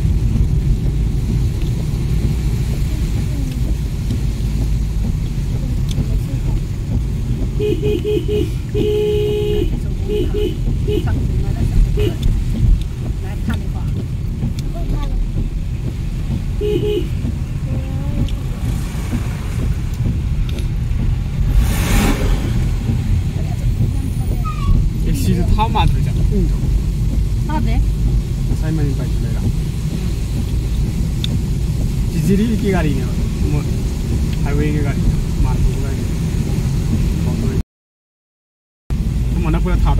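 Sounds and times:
car engine and tyres rumbling: 0.0s - 37.6s, 38.9s - 39.9s
rushing hiss: 21.2s - 26.6s.

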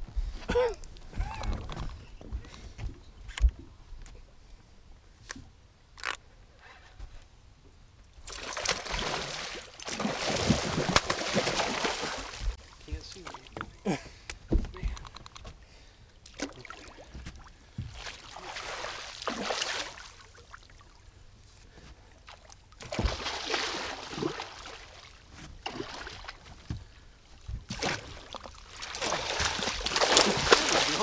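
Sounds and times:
fish thrashing and splashing: 8.3s - 12.6s, 27.7s - 31.0s.

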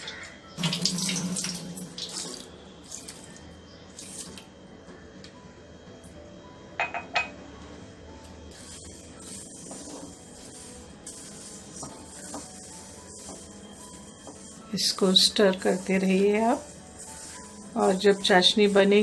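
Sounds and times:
water pouring into a pot: 0.6s - 3.3s.

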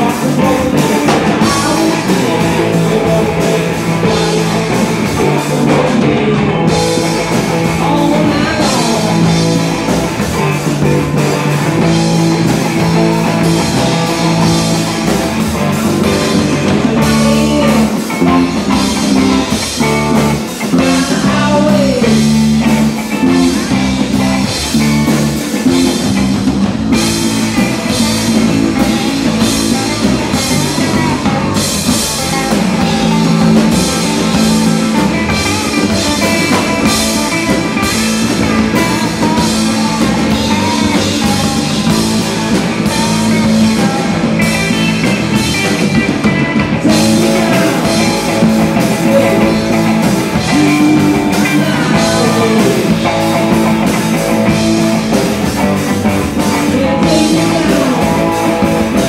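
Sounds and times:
bass guitar: 0.0s - 59.0s
drum kit beat: 0.0s - 59.0s
electric guitars: 0.0s - 59.0s.

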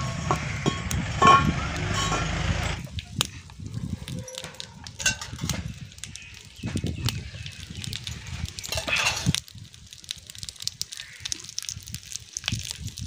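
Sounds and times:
low rumble: 0.0s - 3.0s
wood fire crackling: 0.0s - 13.0s.

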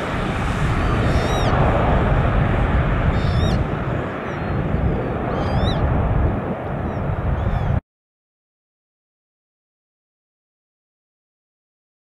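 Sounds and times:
jet engines rumbling: 0.0s - 7.8s.

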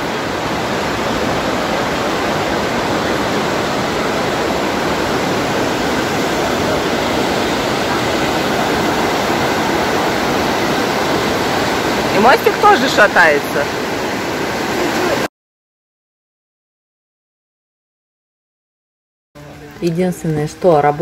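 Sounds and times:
river rushing over boulders: 0.0s - 15.3s.

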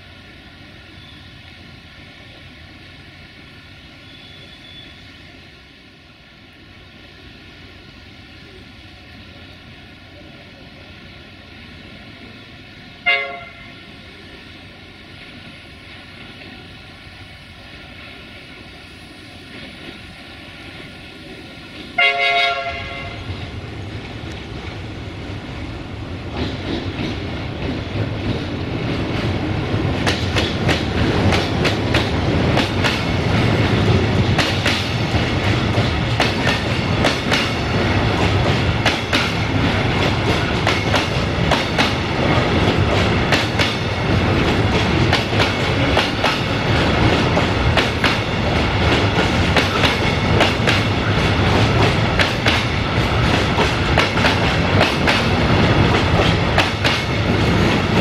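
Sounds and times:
train rumble: 0.0s - 58.0s
train wheels clicking over rail joints: 19.3s - 58.0s.

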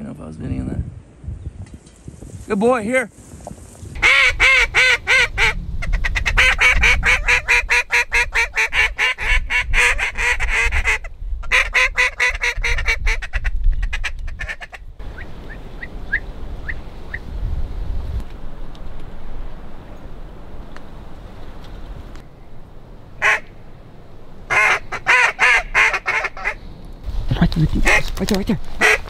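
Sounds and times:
duck call quacking notes: 4.0s - 14.8s, 23.2s - 23.5s, 24.5s - 26.6s, 27.8s - 28.2s, 28.8s - 29.0s.

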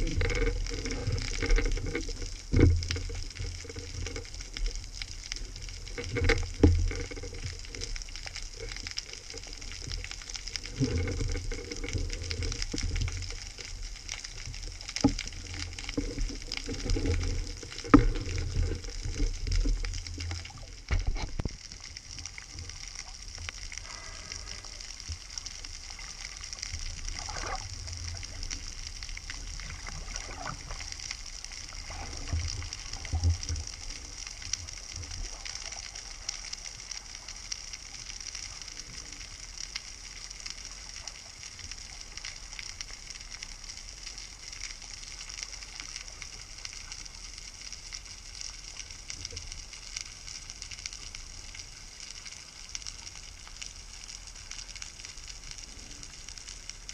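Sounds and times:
underwater fizzing hiss: 0.0s - 42.2s.

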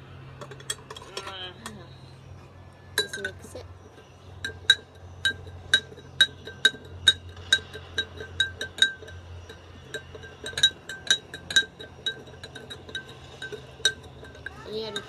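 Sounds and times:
spoon clinking in glass: 3.0s - 3.6s, 4.4s - 15.0s.

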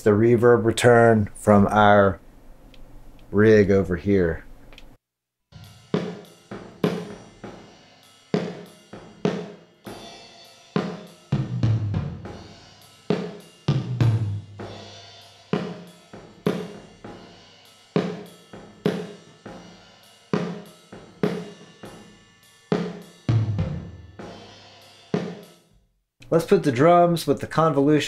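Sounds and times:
reverberant drum hits: 5.6s - 7.8s.

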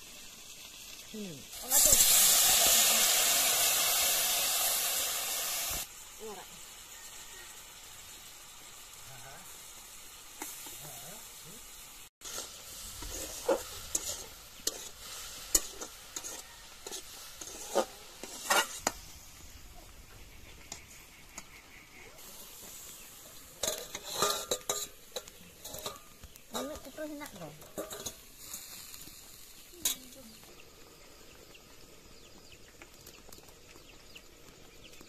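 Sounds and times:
food sizzling in a wok: 0.0s - 35.0s
metal spatula scraping a pan: 12.2s - 19.0s, 20.7s - 28.9s
metal pan lid clattering: 23.6s - 26.9s, 27.6s - 28.2s.

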